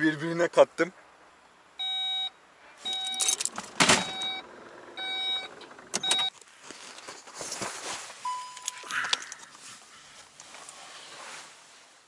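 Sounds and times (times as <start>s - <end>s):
car warning chime beeping: 1.8s - 6.3s, 8.2s - 8.9s.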